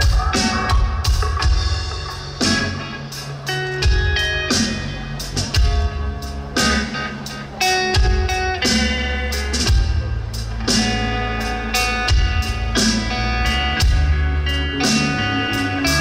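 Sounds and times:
live rock band playing: 0:00.0 - 0:16.0.

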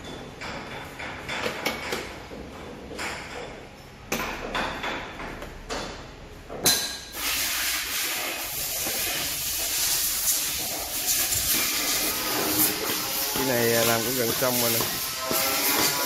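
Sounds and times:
loud steady hiss: 0:07.1 - 0:16.0.

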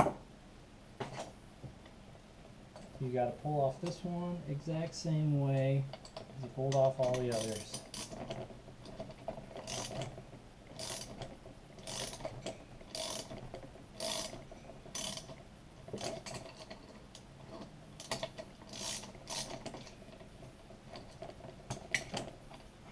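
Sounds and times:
ratchet wrench clicking: 0:07.1 - 0:08.2, 0:09.6 - 0:10.0, 0:10.8 - 0:11.2, 0:11.8 - 0:12.3, 0:12.9 - 0:13.4, 0:14.0 - 0:15.3, 0:18.0 - 0:19.6.

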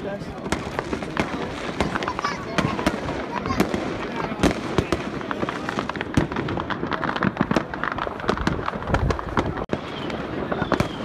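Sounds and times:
firecrackers banging and popping: 0:00.0 - 0:11.0
falling firework whistle: 0:09.7 - 0:11.0.

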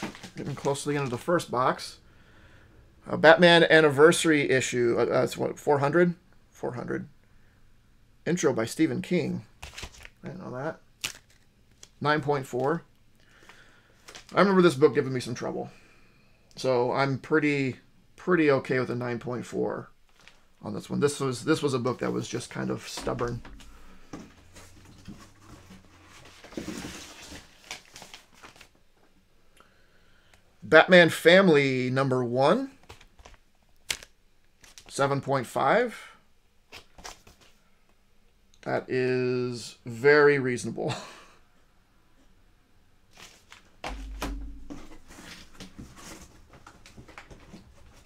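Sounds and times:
plastic bag crinkling: 0:11.0 - 0:11.9
heavy low thump: 0:23.0 - 0:25.3, 0:43.9 - 0:45.6.

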